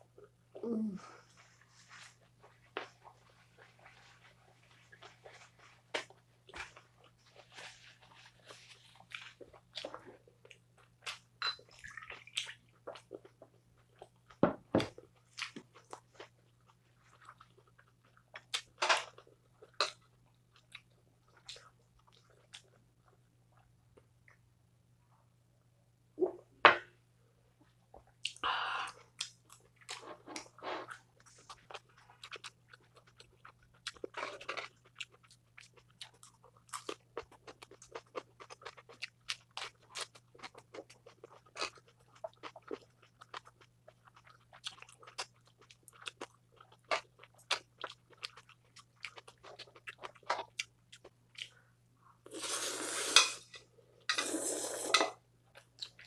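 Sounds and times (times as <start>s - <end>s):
chewing with wet clicks: 31.2s - 51.6s, 55.5s - 56.0s
slurping noodles: 52.3s - 53.4s, 54.1s - 55.2s.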